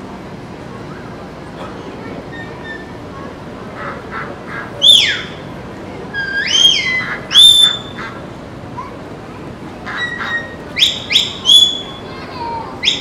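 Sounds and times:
shepherd's whistle: 6.2 - 7.9, 10.8 - 12.0.

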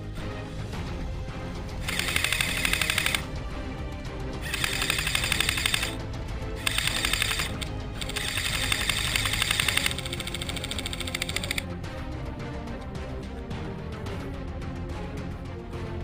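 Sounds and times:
background music: 0.0 - 16.0
rapid clicking gun shots: 1.8 - 3.3, 4.4 - 6.0, 6.6 - 11.6.

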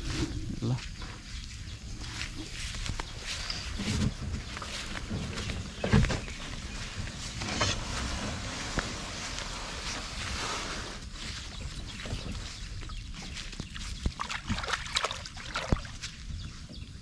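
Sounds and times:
boat hull scraping and knocking: 3.7 - 11.2.

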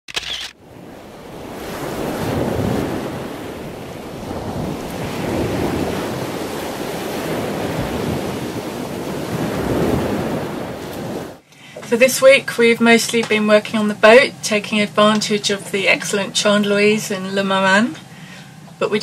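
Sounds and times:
wind buffeting microphone: 0.6 - 11.4
sea surf washing onto shore: 0.6 - 18.9.

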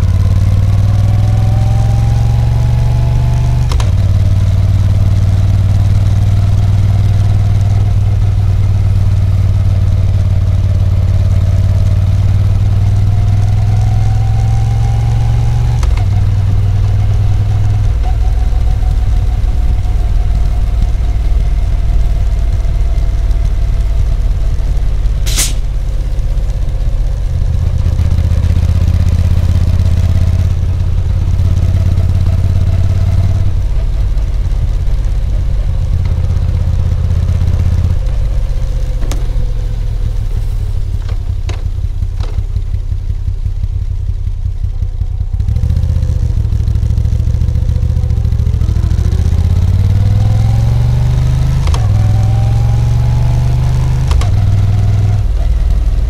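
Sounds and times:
motorcycle engine running: 0.0 - 56.0
brief sharp high sound: 25.3 - 25.8.

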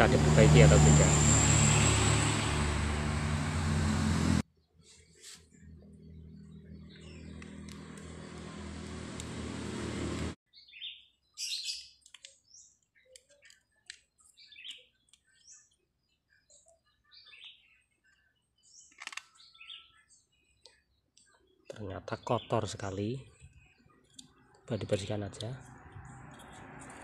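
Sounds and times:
grinder motor running: 0.0 - 4.4, 6.7 - 10.4
birds chirping: 5.5 - 8.5, 10.5 - 27.0.

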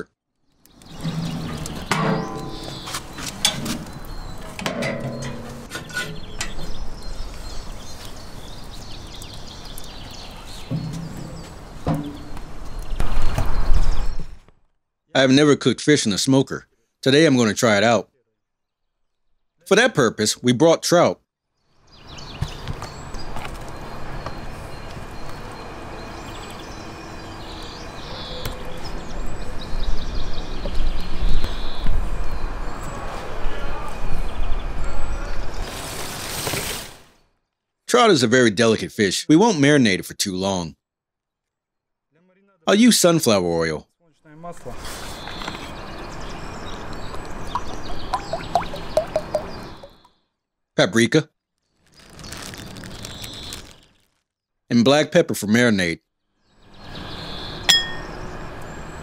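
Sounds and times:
small birds chirping: 0.0 - 14.5, 21.4 - 36.0, 42.2 - 59.0
outdoor background noise: 0.0 - 59.0
metal lid clanking shut: 1.0 - 6.8, 10.7 - 12.4
faint bird chirps: 44.2 - 50.3.

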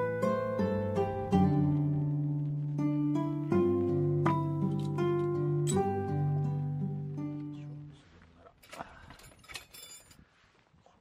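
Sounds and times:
plucked-string music: 0.0 - 8.2.

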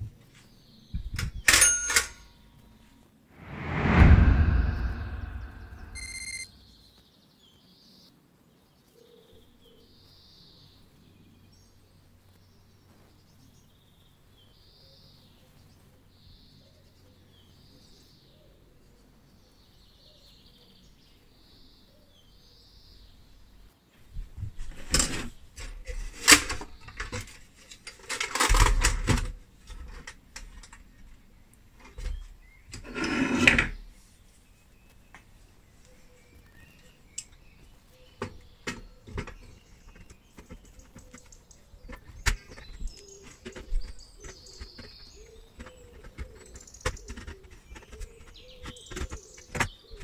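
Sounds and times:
faint birdsong: 0.0 - 2.8, 3.9 - 24.0, 29.7 - 33.0, 33.7 - 50.0
toy cash register knocks and clatters: 1.2 - 2.2, 24.9 - 30.0.

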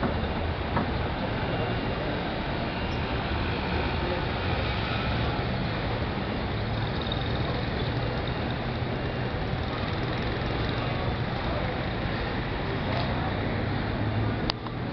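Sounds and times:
cars driving past: 0.0 - 14.9
city noise: 0.0 - 14.9.

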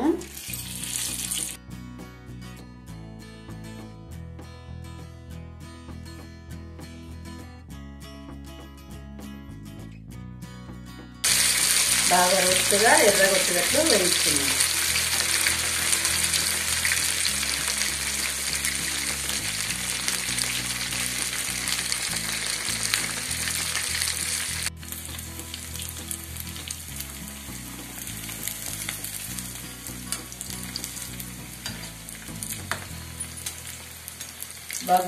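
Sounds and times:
food sizzling in hot oil: 0.0 - 1.6, 11.2 - 35.0.

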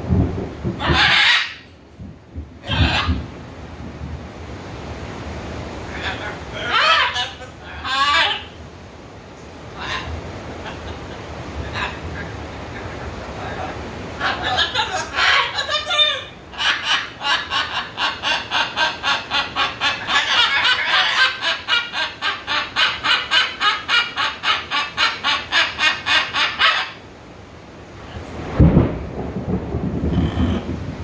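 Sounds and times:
macaw squawking: 0.8 - 1.7, 6.0 - 8.5, 14.2 - 27.0.

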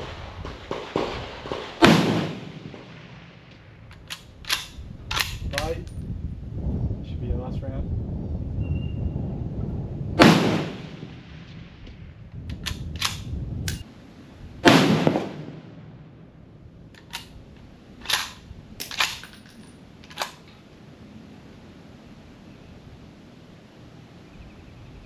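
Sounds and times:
rifle shots: 0.0 - 5.8, 10.2 - 11.4, 14.6 - 15.7.

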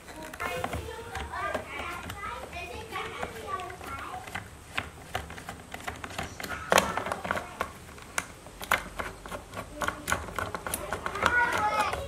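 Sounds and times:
child's voice: 0.1 - 4.4, 6.3 - 7.8, 9.7 - 12.0.

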